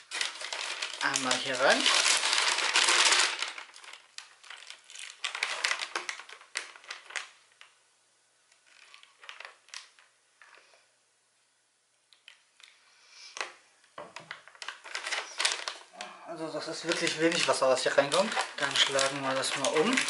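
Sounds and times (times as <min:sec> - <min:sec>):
plastic and foil packaging crinkling: 0:00.0 - 0:07.8, 0:08.5 - 0:10.6, 0:14.2 - 0:20.0.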